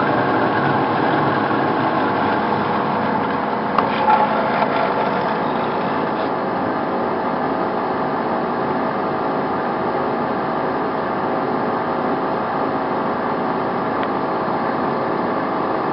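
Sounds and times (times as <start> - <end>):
band saw cutting metal tubing: 0.0 - 6.6.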